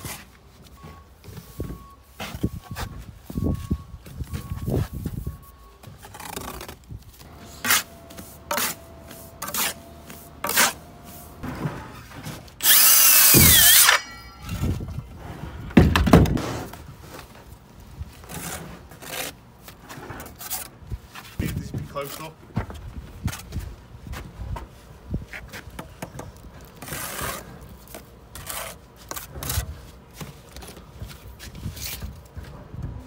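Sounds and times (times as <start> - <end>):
circular saw cutting concrete: 12.6 - 14.6.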